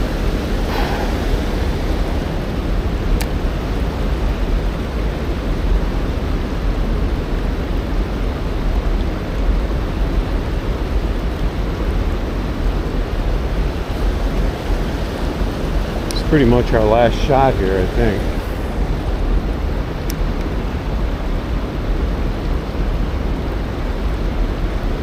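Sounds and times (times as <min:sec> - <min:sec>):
deep low rumble: 0:00.0 - 0:05.4
river water rushing over shallows: 0:00.0 - 0:25.0.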